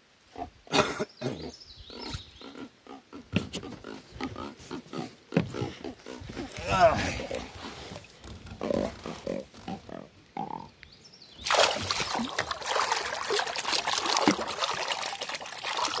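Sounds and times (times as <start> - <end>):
water splashing and churning: 11.4 - 16.0.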